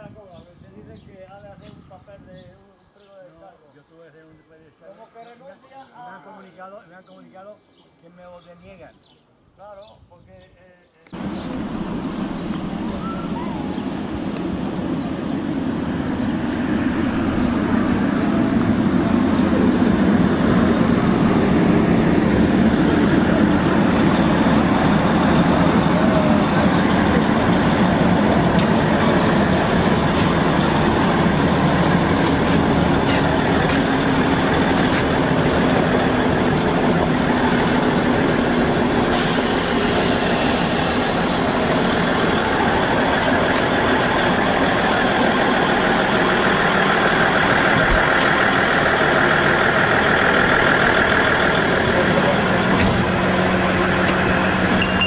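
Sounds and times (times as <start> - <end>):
diesel train engine running: 11.2 - 55.0
compressed air hiss: 39.1 - 41.9.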